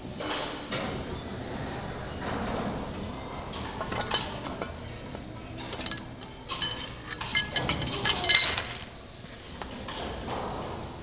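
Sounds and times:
metal chain clinking: 0:05.6 - 0:09.0.

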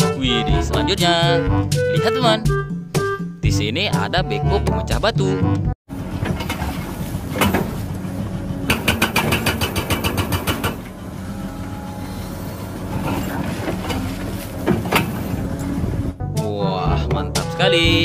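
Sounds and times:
diesel engine running: 0:05.9 - 0:16.3
hydraulic breaker hammering rock: 0:08.7 - 0:11.0.

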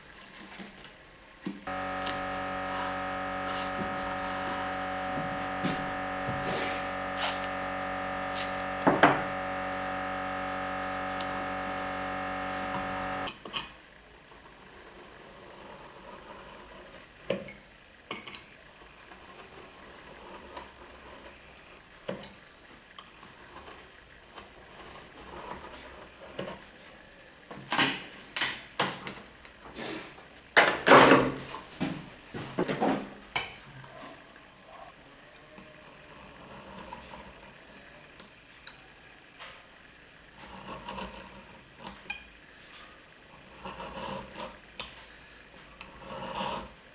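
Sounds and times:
steady multi-pitch hum: 0:01.7 - 0:13.3.

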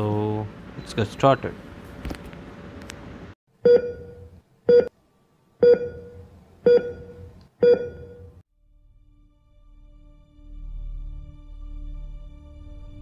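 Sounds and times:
short electronic beeps: 0:03.7 - 0:04.9, 0:05.6 - 0:08.4.

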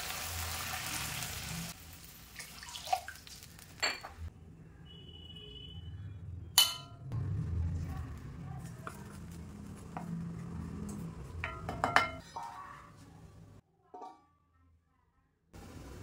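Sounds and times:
wooden spatula stirring: 0:07.8 - 0:13.4.

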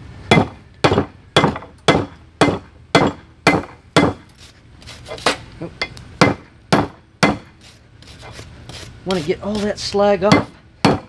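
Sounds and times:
hammer striking steel on anvil: 0:00.3 - 0:04.2, 0:05.8 - 0:07.5, 0:10.2 - 0:11.0.

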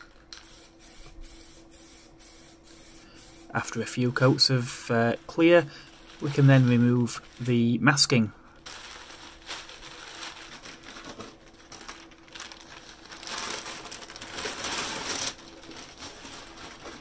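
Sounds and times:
paper crinkling and rustling: 0:05.8 - 0:08.0, 0:08.6 - 0:17.0
masking tape and paper peeling: 0:11.8 - 0:17.0.

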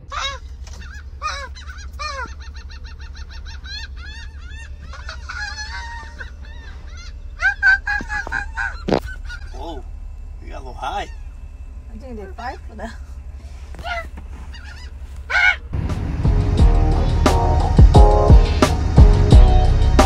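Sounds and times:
gulls calling: 0:00.0 - 0:15.8.

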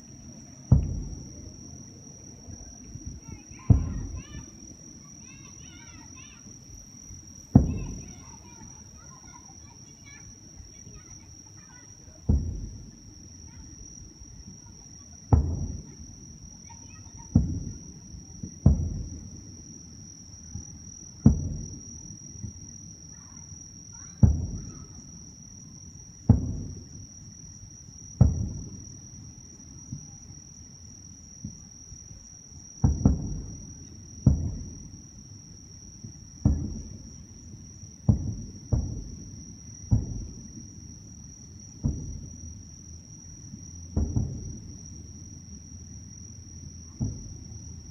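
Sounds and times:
high-pitched insect trill: 0:00.0 - 0:47.9
firework shells booming: 0:00.2 - 0:01.7, 0:02.5 - 0:13.8, 0:15.3 - 0:16.1, 0:16.7 - 0:19.3, 0:21.2 - 0:22.6, 0:24.2 - 0:25.0, 0:26.2 - 0:27.0, 0:28.2 - 0:28.9, 0:32.8 - 0:35.0, 0:36.0 - 0:40.8, 0:41.8 - 0:42.6, 0:43.5 - 0:45.0, 0:47.0 - 0:47.5.

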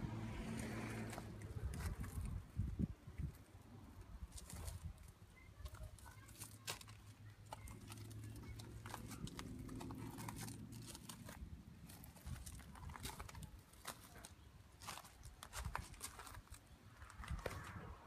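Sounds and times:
footsteps crunching on gravel: 0:04.3 - 0:18.0.

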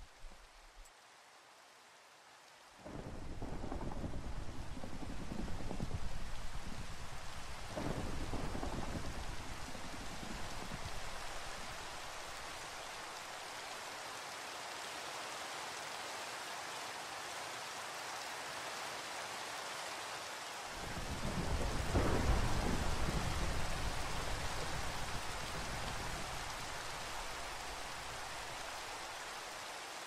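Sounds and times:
steady rain falling: 0:00.0 - 0:30.0
thunder rolling: 0:02.9 - 0:12.4, 0:20.8 - 0:28.3.

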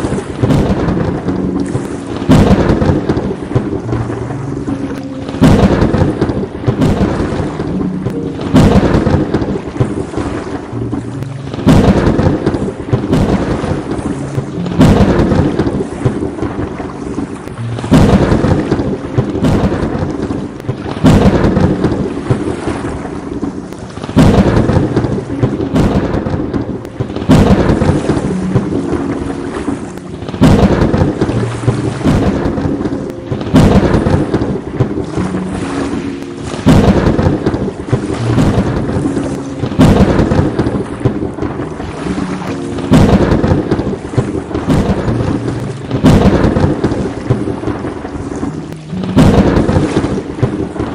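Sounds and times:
steady rain: 0:00.0 - 0:50.9
thunder cracks: 0:00.0 - 0:50.9.

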